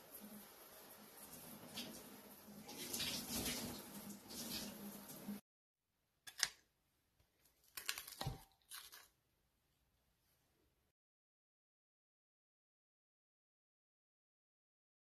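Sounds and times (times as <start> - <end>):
water running from tap into sink: 0.0 - 5.4.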